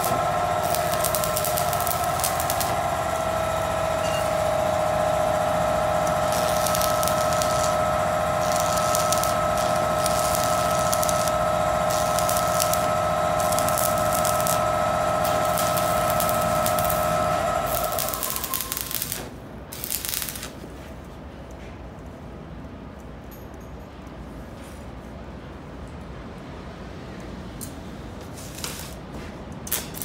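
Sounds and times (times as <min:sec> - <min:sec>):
steady whine: 0:00.0 - 0:20.6
welding arc crackling and hissing: 0:00.0 - 0:20.7, 0:28.4 - 0:29.0, 0:29.7 - 0:30.0.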